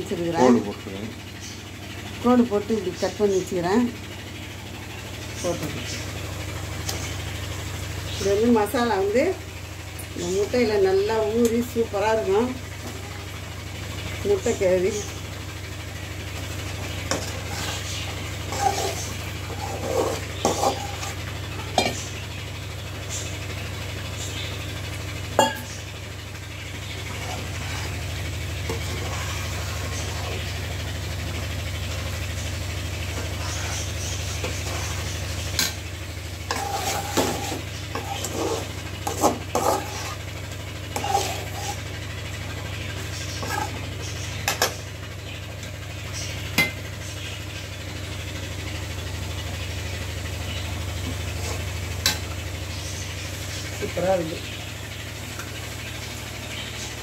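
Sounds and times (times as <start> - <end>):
steady low hum: 0.0 - 57.0
spoon scraping in cooking pan: 16.4 - 22.1, 26.8 - 30.6, 33.1 - 42.0, 43.0 - 44.8.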